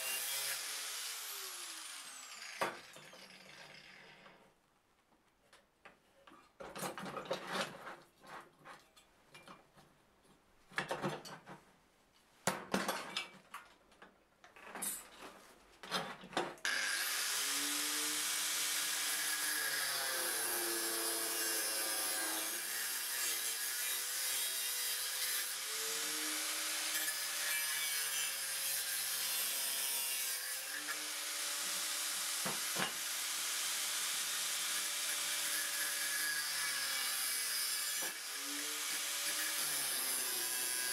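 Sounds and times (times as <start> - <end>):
angle grinder grinding steel: 0.0 - 4.3, 16.7 - 40.9.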